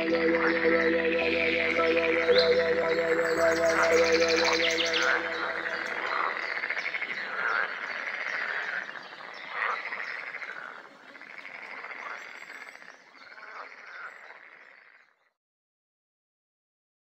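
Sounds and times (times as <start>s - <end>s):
frogs chorus calling: 0.0s - 14.6s.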